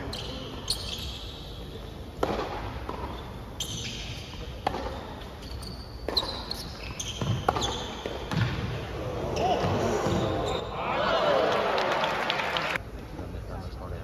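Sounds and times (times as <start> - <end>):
high shoe squeaks: 0.0 - 1.9, 3.0 - 8.4, 9.4 - 10.8
tennis ball struck by racquets: 2.2 - 3.2, 4.6 - 5.1, 7.2 - 8.7.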